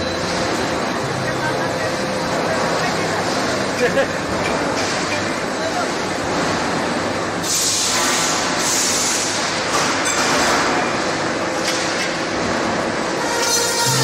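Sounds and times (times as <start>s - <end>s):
tube mill mechanical din: 9.3s - 14.0s.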